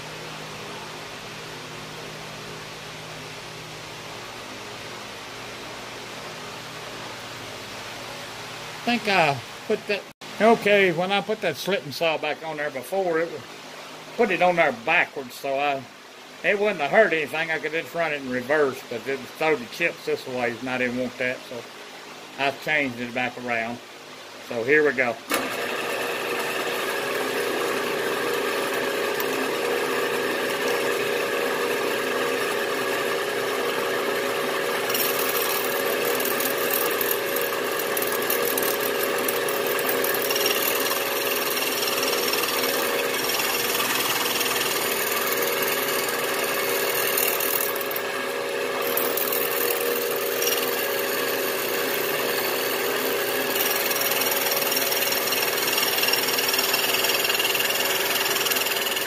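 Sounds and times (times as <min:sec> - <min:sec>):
milling machine motor hum: 0:25.3 - 0:59.0.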